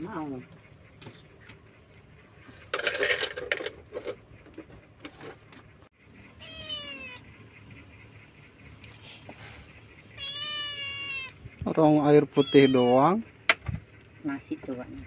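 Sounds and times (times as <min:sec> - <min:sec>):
kitten meowing: 0:06.4 - 0:07.2, 0:10.2 - 0:11.5, 0:12.3 - 0:13.0.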